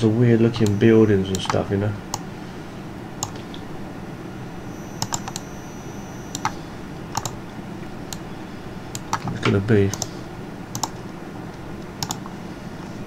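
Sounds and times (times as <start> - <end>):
low steady hum: 0.0 - 13.0
computer keyboard key clicks: 7.1 - 7.4, 10.7 - 11.0, 12.0 - 12.3.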